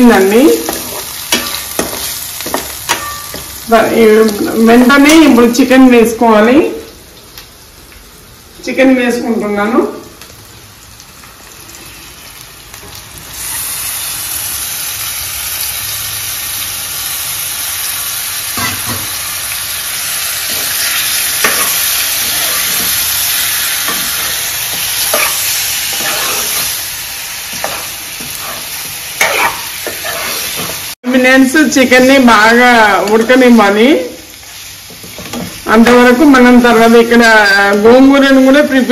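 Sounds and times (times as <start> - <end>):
chicken sizzling in hot oil: 0.0 - 8.7, 10.3 - 38.9
metal spoon scraping a pan: 0.6 - 3.5, 20.4 - 26.8, 27.5 - 30.9.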